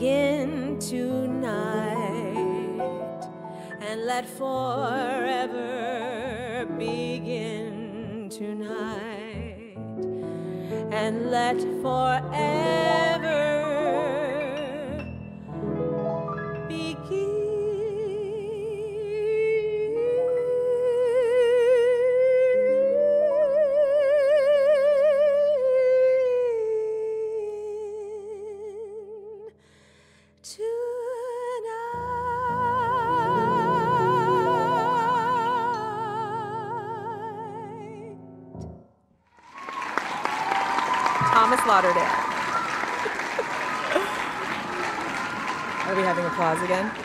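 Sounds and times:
woman singing with vibrato: 0.0 - 9.8, 10.6 - 15.0, 16.7 - 29.4, 30.5 - 38.2
grand piano chords: 0.0 - 21.6, 39.7 - 47.0
applause: 39.4 - 47.0.

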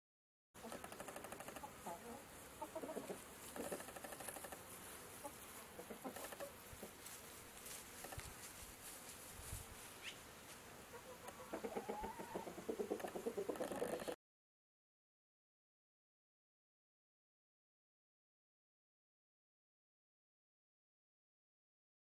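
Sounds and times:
chickens clucking faintly: 0.6 - 7.2, 10.8 - 14.2.

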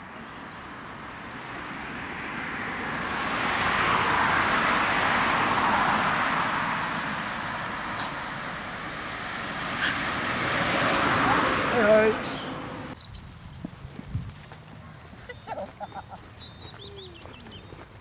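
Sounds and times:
car driving past: 1.2 - 13.0.

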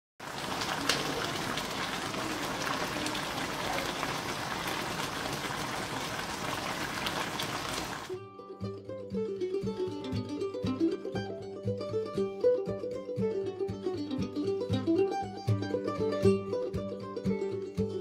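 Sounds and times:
sauce bubbling and sizzling in pan: 0.2 - 8.2.

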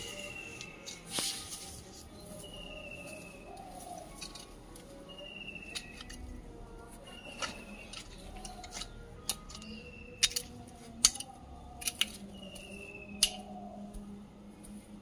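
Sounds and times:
metal rake scraping through soil: 0.0 - 3.3
rake tines clicking: 3.8 - 6.4, 7.0 - 13.4.

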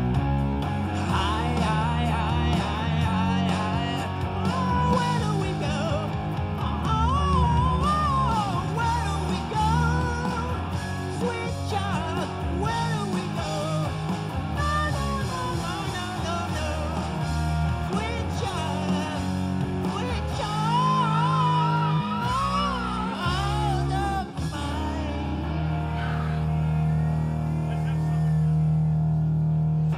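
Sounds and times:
electric guitar: 0.0 - 29.9
low bass line: 0.0 - 29.9
man singing: 0.9 - 26.2.

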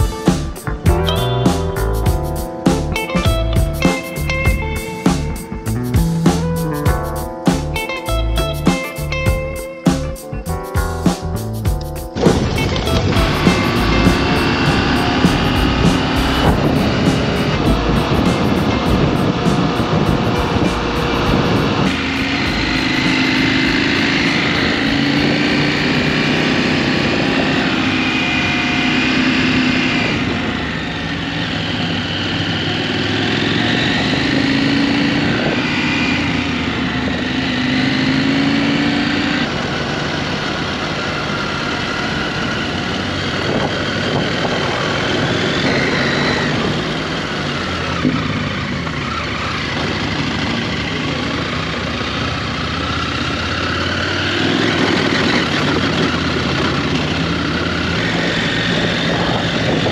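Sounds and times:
motorcycle engine running: 0.0 - 59.9
wind noise on microphone: 8.4 - 31.3, 32.9 - 39.6, 42.0 - 48.9, 54.4 - 59.9.

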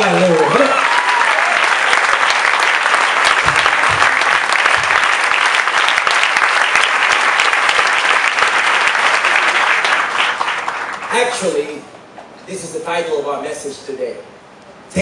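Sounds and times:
congregation applauding: 0.0 - 11.7.

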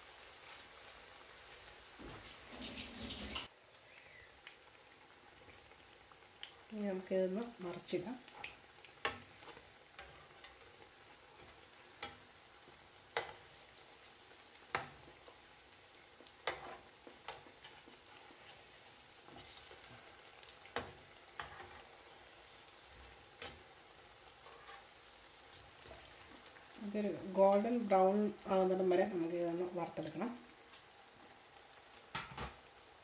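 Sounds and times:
patties sizzling in oil: 0.0 - 33.0
metal spatula clicking on pan: 12.0 - 12.2, 14.7 - 15.0.

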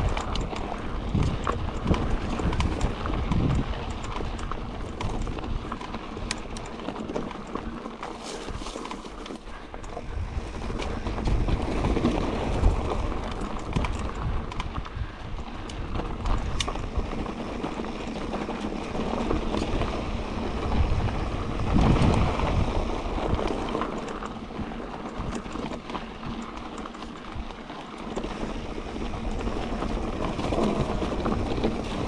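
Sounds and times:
bike clicks and rattles: 0.0 - 32.0
wind and tyre noise: 0.0 - 32.0.

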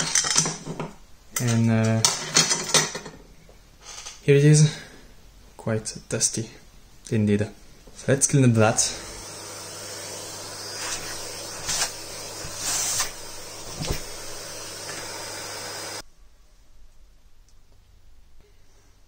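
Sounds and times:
vacuum cleaner running: 8.7 - 16.0.

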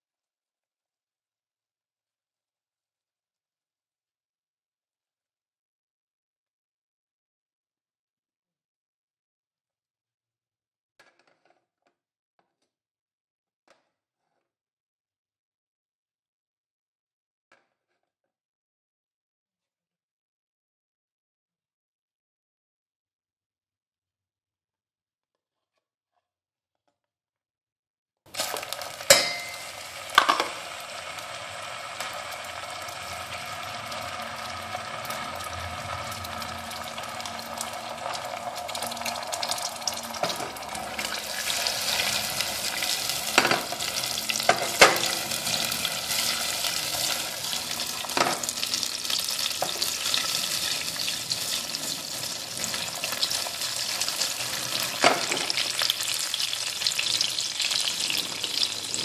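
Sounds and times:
syrup bubbling and sizzling: 28.3 - 59.0
fork clinking against pan: 29.1 - 30.4.

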